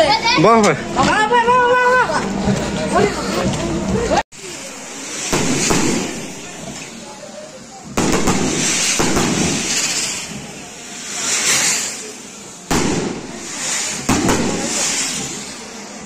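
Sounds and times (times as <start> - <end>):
fireworks hissing and fizzing: 0.0 - 16.0
firecracker bangs: 4.4 - 7.0, 7.9 - 15.7.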